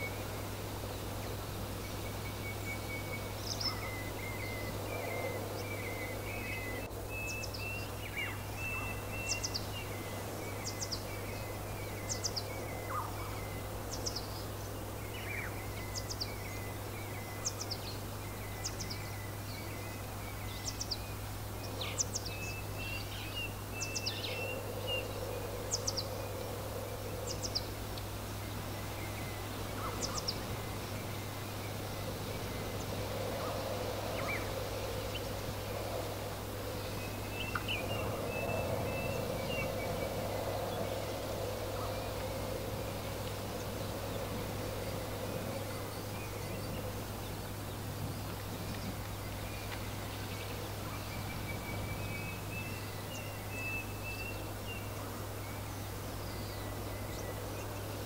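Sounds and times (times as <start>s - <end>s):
low steady hum: 0.0s - 58.0s
songbirds chirping: 0.0s - 58.0s
wind noise: 18.0s - 58.0s.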